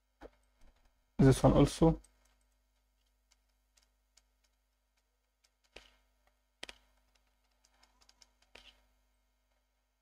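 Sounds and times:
faint mouse and keyboard clicks: 1.9 - 9.7.

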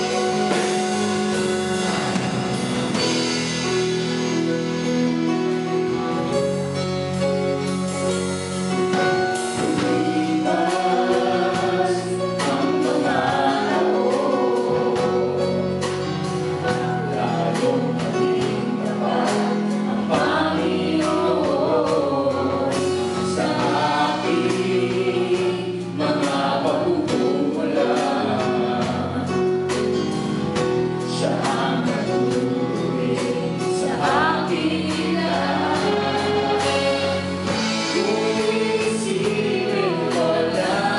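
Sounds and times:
drum kit steady beat: 0.0 - 40.9
electric guitar: 0.0 - 40.9
woman and man singing: 9.6 - 15.4, 16.7 - 29.5, 31.0 - 40.9.

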